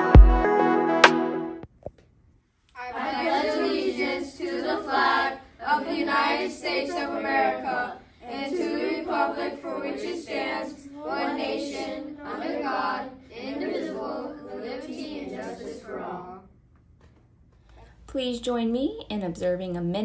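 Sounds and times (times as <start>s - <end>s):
children reciting in unison: 2.8s - 16.5s.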